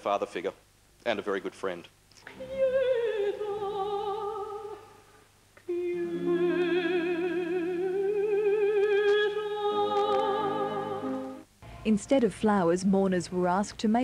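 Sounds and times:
operatic singing: 2.3 - 4.8, 5.7 - 11.4.

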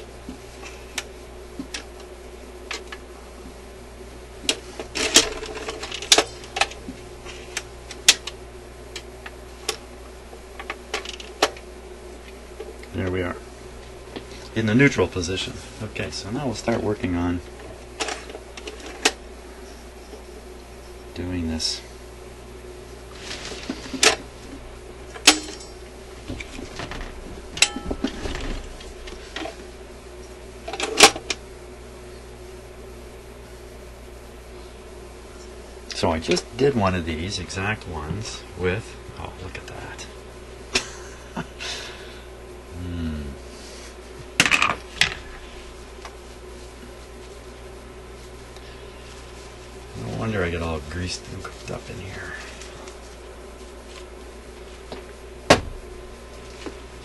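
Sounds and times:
low steady hum: 0.0 - 57.0
record changer clicks and rattles: 4.4 - 9.9, 10.5 - 11.7, 16.7 - 19.2, 30.2 - 31.4
handling noise: 23.1 - 31.4
metallic ring: 25.3 - 25.8, 27.6 - 28.0.

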